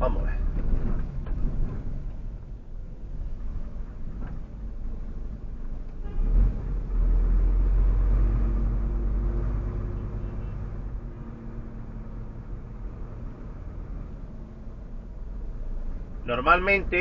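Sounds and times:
diesel truck engine rumbling: 0.0 - 17.0
low thump: 0.5 - 2.2.

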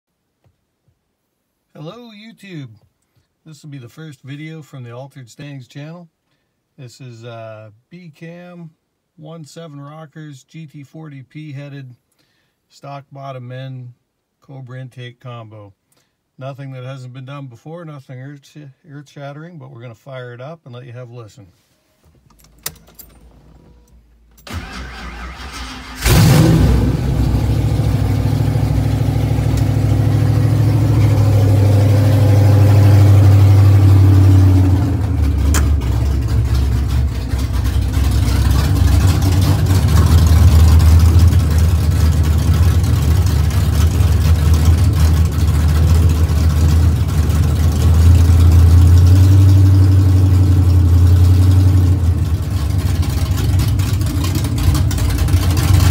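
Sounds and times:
car engine idling: 24.5 - 55.9.

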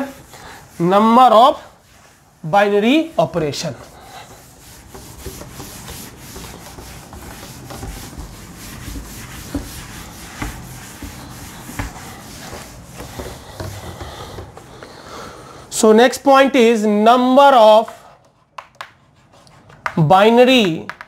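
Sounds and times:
cloth rubbing on chalkboard: 0.0 - 14.8.

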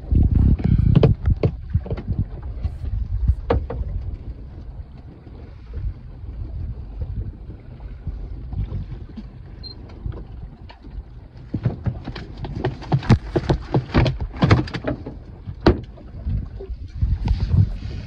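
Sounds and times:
steady low rumble: 0.0 - 11.4, 15.1 - 18.0.

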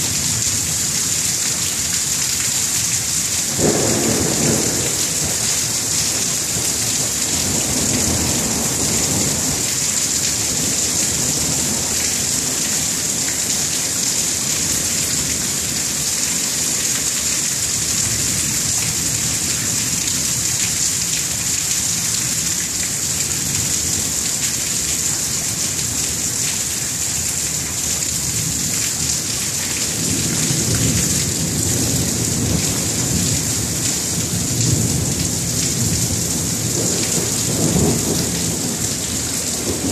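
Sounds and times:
steady rain: 0.0 - 39.9
thunder rumbling: 3.5 - 13.2, 29.9 - 39.9.

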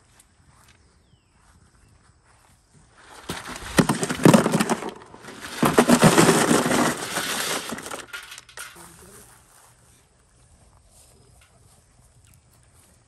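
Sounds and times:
crab shells clattering on metal: 3.3 - 8.8.

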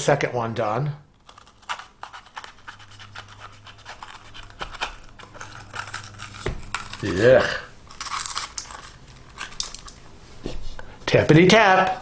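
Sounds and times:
knife cutting pepper: 1.2 - 9.8.

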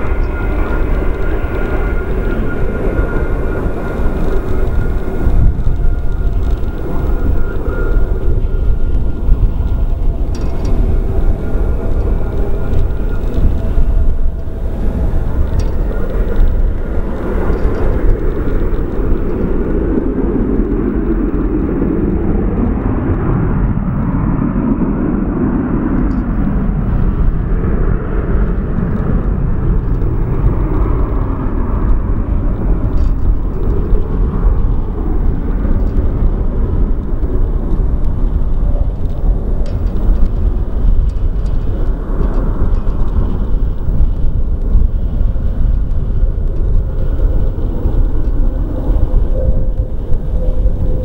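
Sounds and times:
jet engines rumbling: 0.0 - 51.0.

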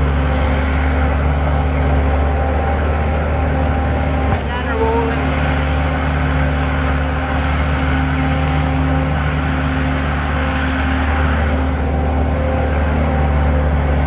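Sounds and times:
engine low drone: 0.0 - 14.0.

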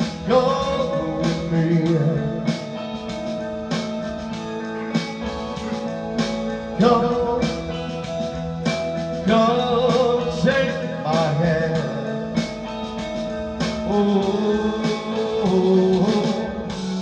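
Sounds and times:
man singing into a microphone: 0.0 - 2.9, 6.8 - 7.9, 9.2 - 12.5, 13.7 - 17.0
backing track with guitar and beat: 0.0 - 17.0.

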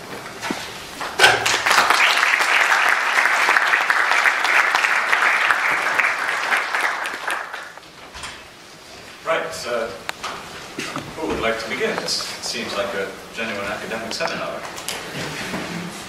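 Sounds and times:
audience applauding: 1.0 - 7.8.

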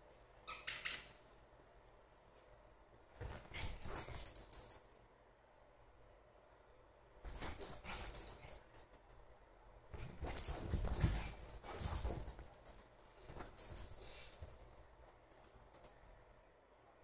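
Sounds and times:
dog pouncing on cushions: 3.2 - 4.4, 7.2 - 8.7, 9.9 - 14.7
collar tag jingling: 3.3 - 5.0, 7.2 - 9.3, 9.9 - 16.1.

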